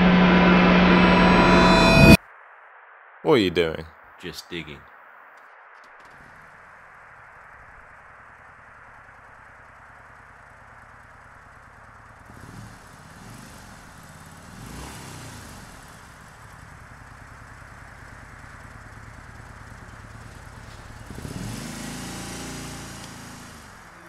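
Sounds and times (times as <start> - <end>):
road vehicles passing: 6.0 - 24.0.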